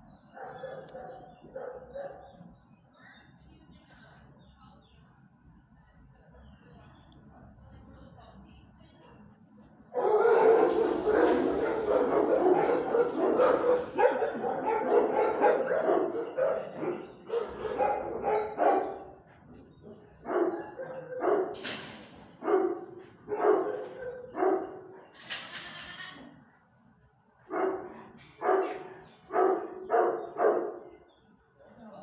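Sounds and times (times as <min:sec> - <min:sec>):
dogs barking: 0:00.2 - 0:02.5, 0:09.9 - 0:25.1, 0:27.5 - 0:31.1.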